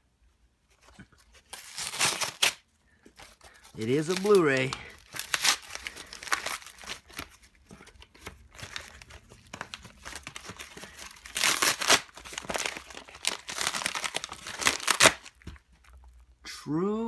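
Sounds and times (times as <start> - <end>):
paper and cardboard tearing: 1.5 - 2.6, 3.8 - 7.3, 8.6 - 15.4.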